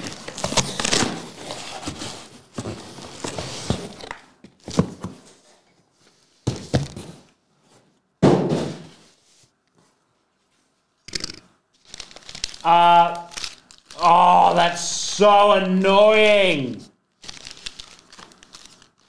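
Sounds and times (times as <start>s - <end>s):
card boxes handled on a table: 0.1s - 7.9s.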